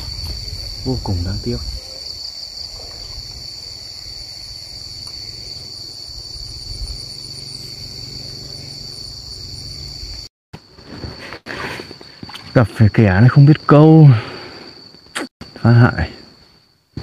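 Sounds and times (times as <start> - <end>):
wind rumble on microphone: 0.0 - 3.6, 6.0 - 7.2
insects droning: 0.0 - 17.0.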